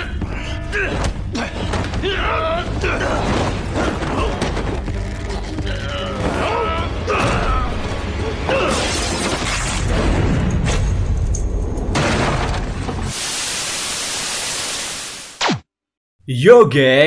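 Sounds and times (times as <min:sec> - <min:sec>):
action film music: 0:00.0 - 0:12.0.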